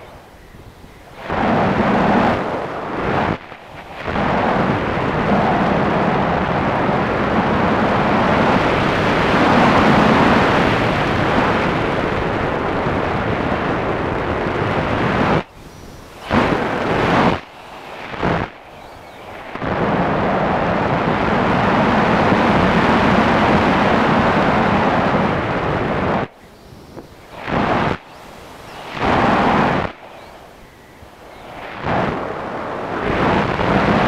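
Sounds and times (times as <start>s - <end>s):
wind buffeting microphone: 0.0s - 34.0s.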